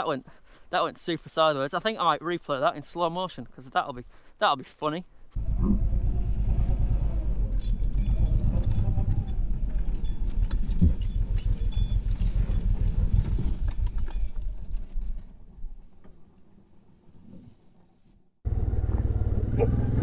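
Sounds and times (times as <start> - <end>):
slowed engine and wind rumble: 5.4 - 20.0.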